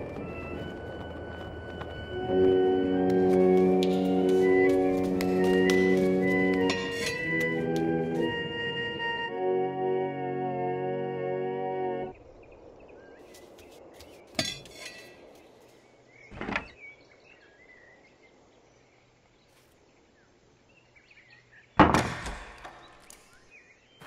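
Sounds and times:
organ chord: 2.0s - 12.1s
thud: 21.8s - 22.7s.

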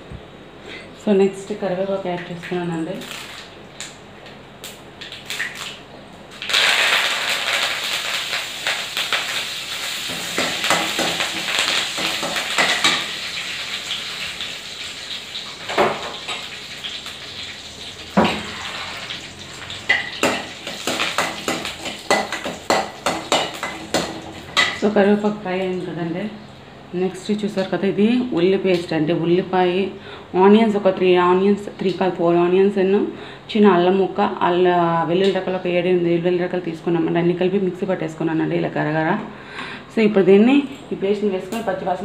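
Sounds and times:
spluttering sizzle of frying oil: 2.9s - 4.0s, 4.6s - 26.0s.

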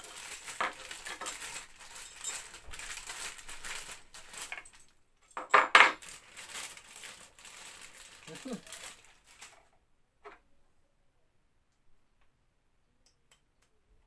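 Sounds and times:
nuts and bolts clinking in bag: 0.0s - 9.7s
plastic bag crinkling: 0.0s - 9.7s.

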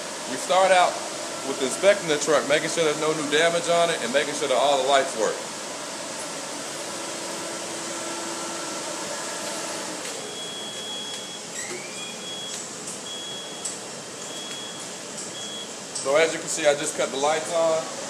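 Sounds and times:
high-pitched warning beep: 10.2s - 15.7s.

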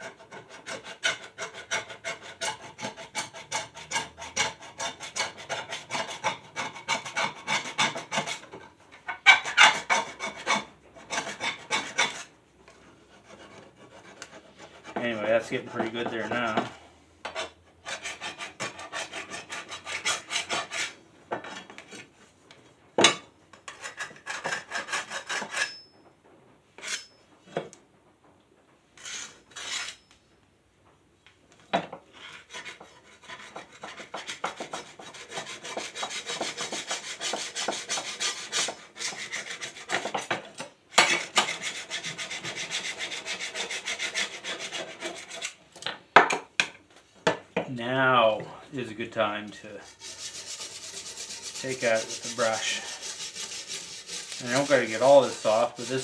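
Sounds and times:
scraper rasping on metal blade: 0.0s - 8.5s, 9.3s - 12.3s, 17.3s - 21.0s, 23.7s - 25.8s, 32.2s - 40.3s, 41.0s - 45.6s, 49.8s - 56.0s.

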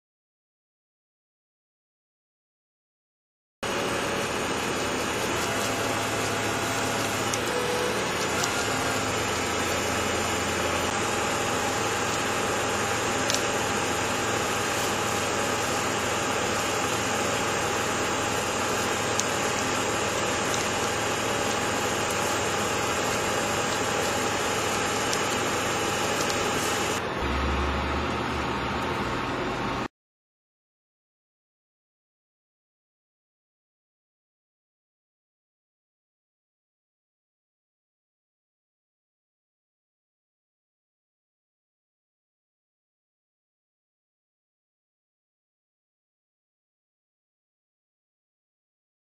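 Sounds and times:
engine idling: 3.6s - 29.9s.

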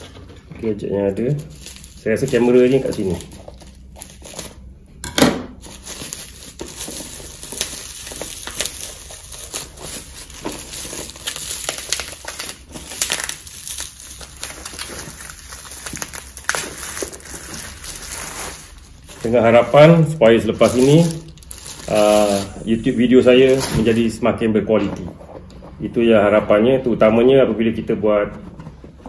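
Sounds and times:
bubble wrap crinkling: 0.9s - 4.8s, 5.6s - 24.3s.

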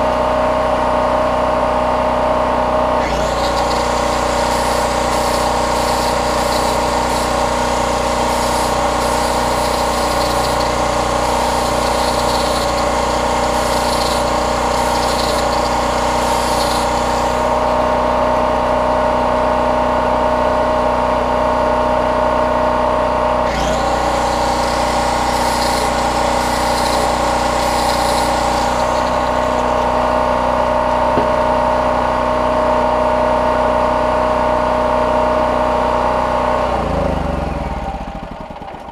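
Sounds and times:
generator engine running: 0.0s - 38.9s
angle grinder grinding steel: 3.0s - 18.7s, 23.4s - 32.1s.

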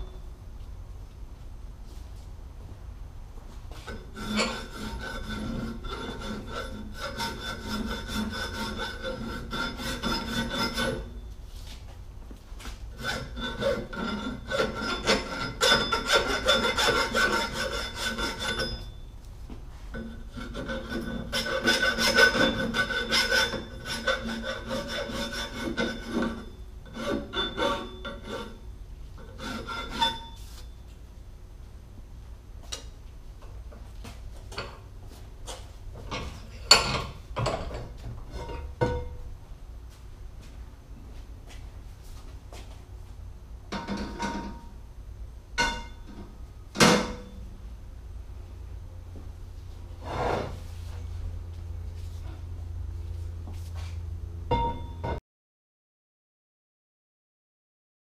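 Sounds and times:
file rasping on metal: 3.9s - 11.1s, 13.0s - 18.9s, 20.1s - 28.6s, 29.2s - 30.3s.

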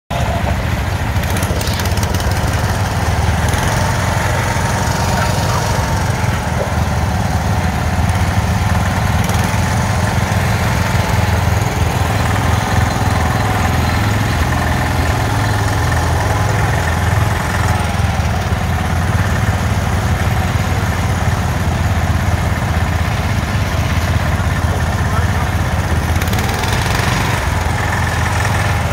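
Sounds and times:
garden tractor engines droning: 0.0s - 28.9s.

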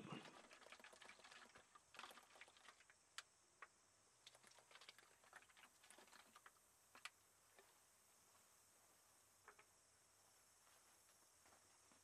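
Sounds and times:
faint ticks and clicks: 0.2s - 7.8s, 9.4s - 9.8s.

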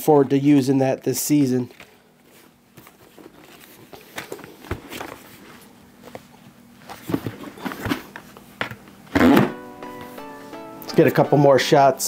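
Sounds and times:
helmet handling knocks and rustles: 1.4s - 9.6s.

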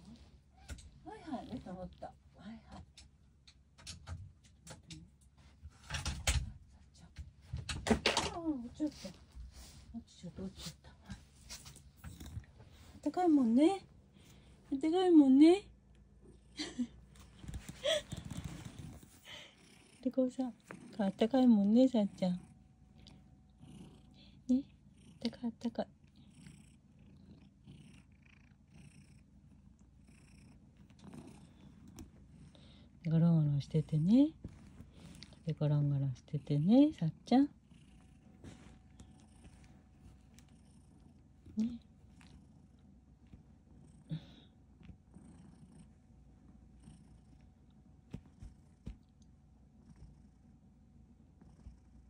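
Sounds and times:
cat purring: 0.0s - 52.0s
hand rustling over fur: 17.2s - 19.3s, 38.4s - 40.4s.

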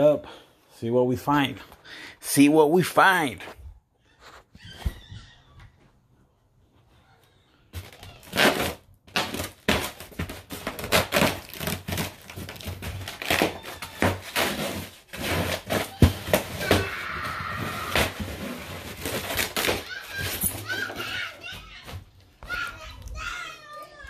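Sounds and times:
cardboard and plastic rustling: 7.7s - 24.0s.

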